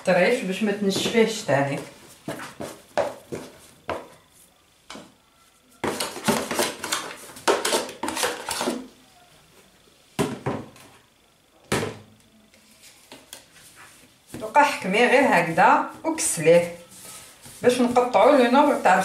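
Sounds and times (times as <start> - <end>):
dough scraper scraping plastic bowl: 5.8 - 8.9, 14.4 - 19.0.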